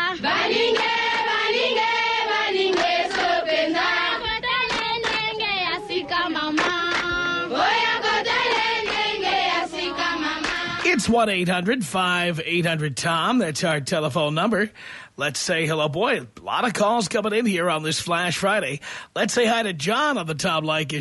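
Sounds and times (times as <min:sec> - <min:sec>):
chorus of high voices chanting: 0:00.0 - 0:10.8
percussive accents: 0:10.4 - 0:12.7.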